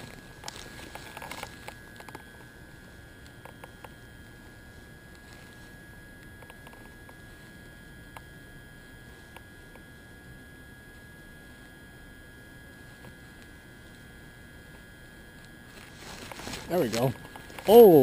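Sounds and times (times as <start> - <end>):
faint steady high tone: 0.0 - 18.0.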